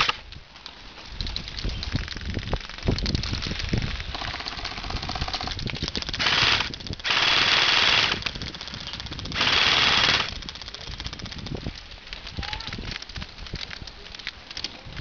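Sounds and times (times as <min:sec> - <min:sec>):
airsoft rifle firing bursts: 0:00.0 - 0:00.2, 0:04.1 - 0:11.3.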